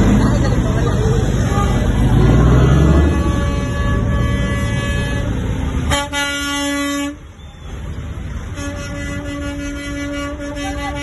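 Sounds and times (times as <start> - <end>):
diesel engine rumble: 0.0 - 11.0
truck air horn: 2.7 - 7.8, 8.4 - 11.0.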